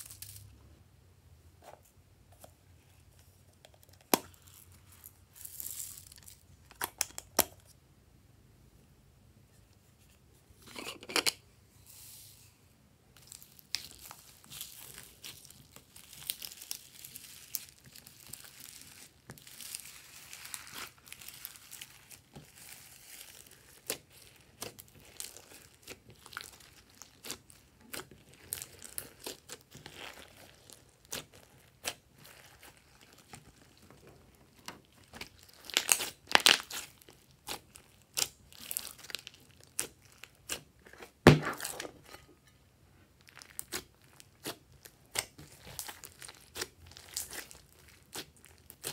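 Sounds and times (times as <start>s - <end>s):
slime clicking and crackling: 13.2s - 40.9s, 43.2s - 48.9s.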